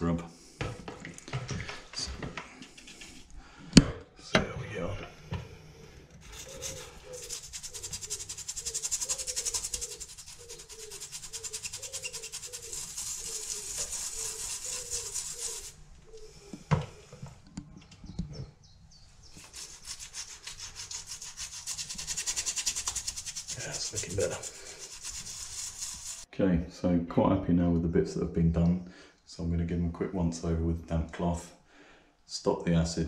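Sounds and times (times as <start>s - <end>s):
toothbrush scrubbing wood: 6.2s - 15.8s, 19.2s - 26.3s.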